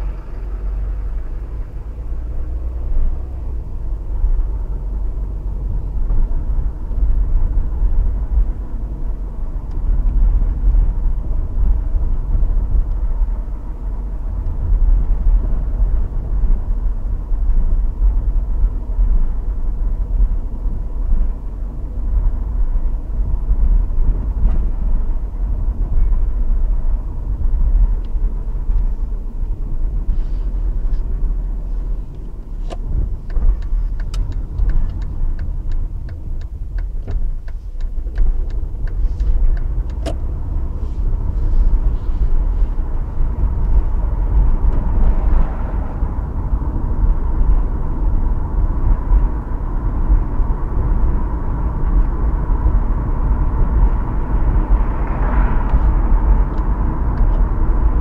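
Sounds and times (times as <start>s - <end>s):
vehicle engine and road rumble: 0.0s - 58.0s
light rattles and clicks: 32.1s - 40.3s.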